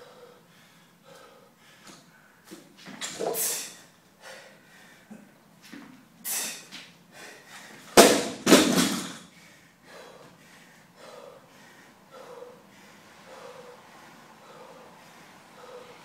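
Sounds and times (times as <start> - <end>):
heavy breathing: 0.0 - 2.6, 3.4 - 5.4, 6.2 - 8.0, 9.2 - 16.0
barbell thudding on rubber mat: 8.0 - 9.2.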